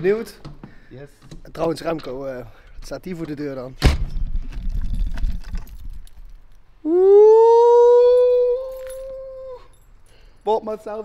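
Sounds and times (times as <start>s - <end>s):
person's high-pitched ooh: 6.8s - 9.8s.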